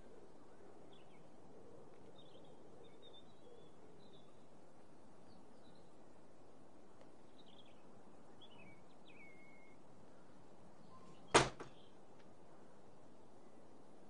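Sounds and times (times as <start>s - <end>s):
faint bird chirps: 0.0s - 4.5s, 7.3s - 12.7s
steady background hiss: 0.0s - 14.0s
door shutting: 11.3s - 11.7s.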